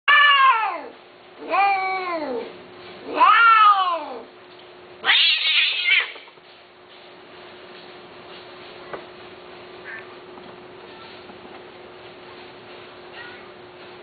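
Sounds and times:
cats yowling: 0.1s - 4.3s, 5.0s - 6.4s
cat raspy screech: 5.0s - 6.2s.

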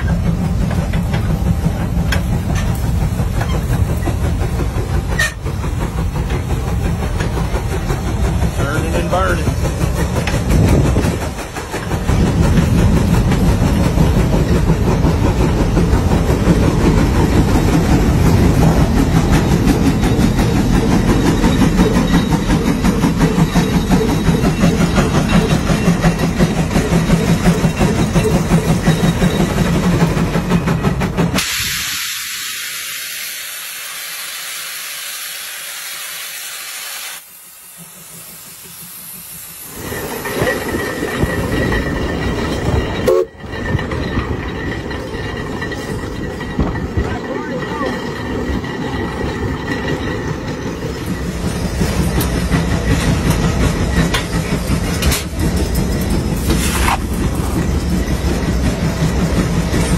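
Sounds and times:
steam engine exhaust chuffing: 0.0s - 36.3s
steam hissing: 0.0s - 43.2s.

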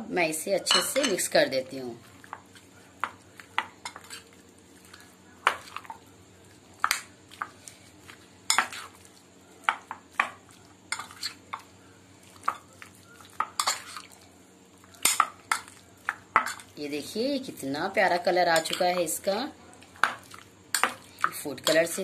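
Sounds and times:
spoon clinking against glass bowl: 0.7s - 1.2s
spoon stirring thick marinade: 2.0s - 14.2s.

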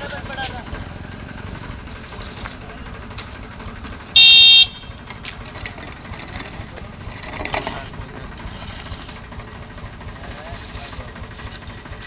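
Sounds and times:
low engine rumble: 0.0s - 12.0s
vehicle horn blast: 4.1s - 5.0s.

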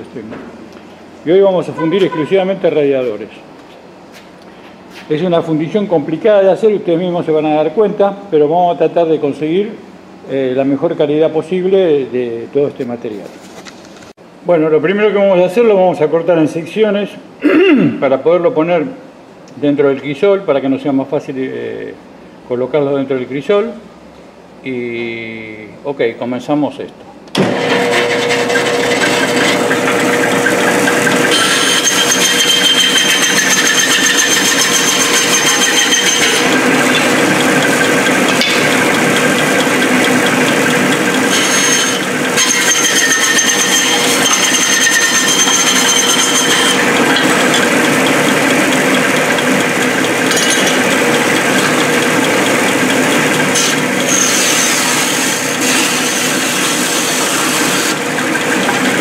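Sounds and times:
high whine: 1.3s - 3.4s
motor hum: 27.3s - 59.0s
band saw cutting metal fins: 27.4s - 59.0s.

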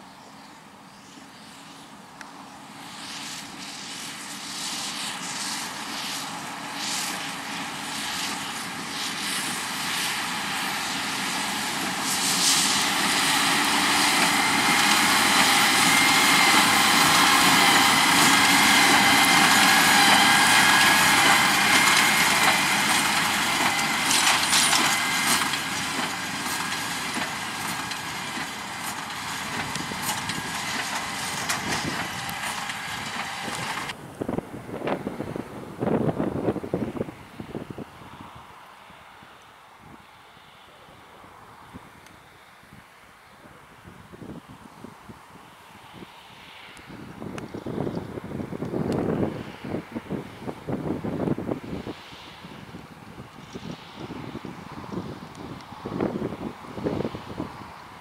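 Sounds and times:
baler mechanical whine: 1.5s - 37.1s
tractor diesel engine under load: 1.6s - 38.0s.

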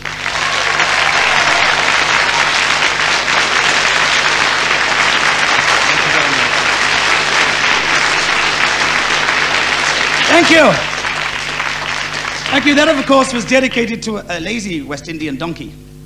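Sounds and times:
audience applauding: 0.0s - 14.0s
song: 4.5s - 11.3s.

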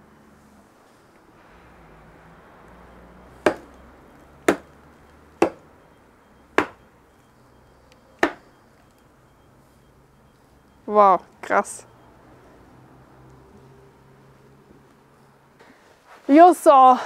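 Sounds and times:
hammer chopping into bone: 3.4s - 3.7s, 4.5s - 4.7s, 5.4s - 5.6s, 6.6s - 6.8s, 8.2s - 8.4s.

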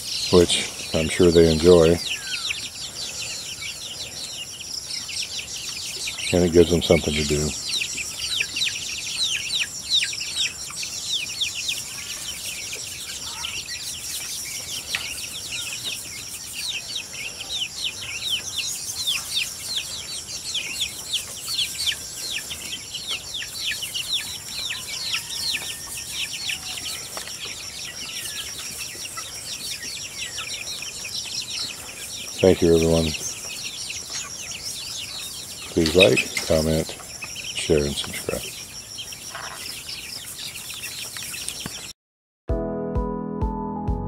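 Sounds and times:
chicks peeping: 0.0s - 41.9s.

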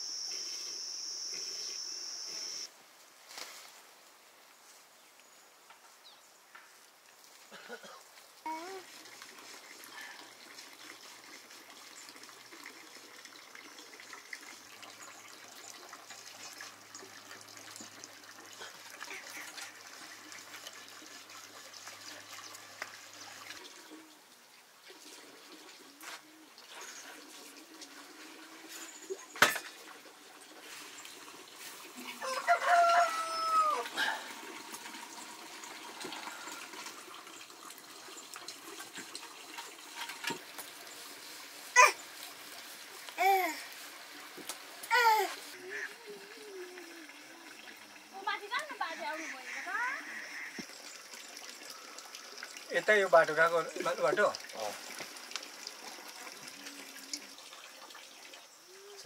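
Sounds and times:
rooster crowing: 32.1s - 34.3s.

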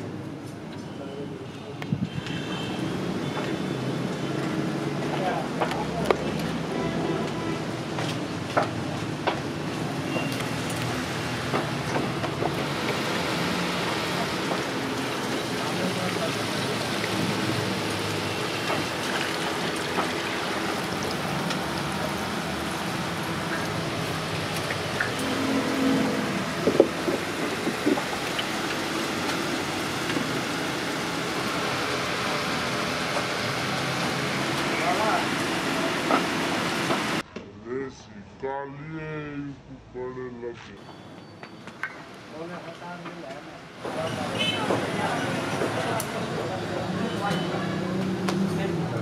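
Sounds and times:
liquid pouring and splashing: 12.6s - 31.7s.

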